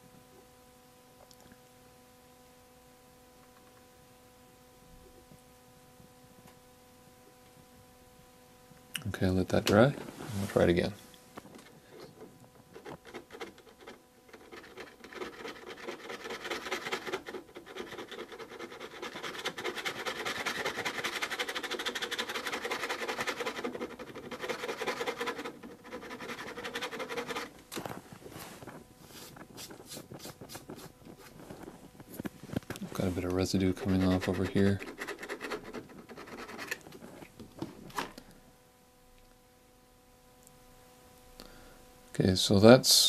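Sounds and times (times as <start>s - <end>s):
plastic scraper rasping on wax: 11.8s - 27.9s, 32.8s - 37.1s.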